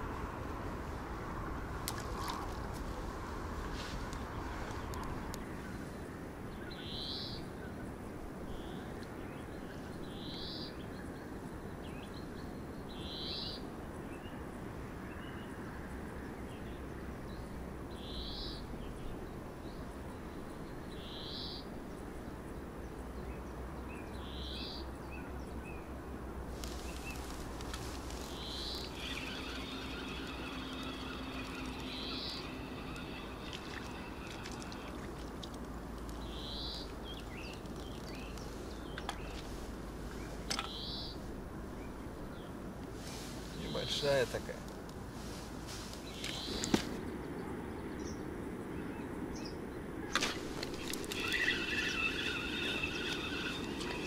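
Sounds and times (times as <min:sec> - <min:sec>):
small bird high call: 0:26.6 - 0:35.2, 0:50.0 - 0:54.0.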